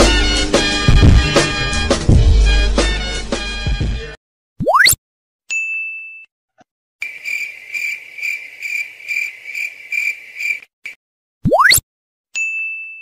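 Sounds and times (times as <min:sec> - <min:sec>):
crickets chirping: 0:07.0 - 0:10.6.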